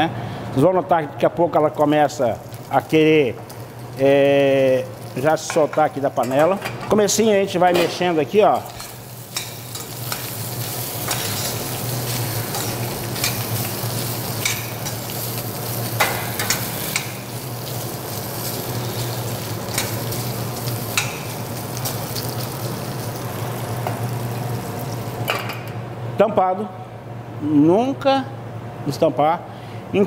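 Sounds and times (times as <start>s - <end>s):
bacon sizzling in a saucepan: 1.8s - 6.3s, 8.4s - 25.4s.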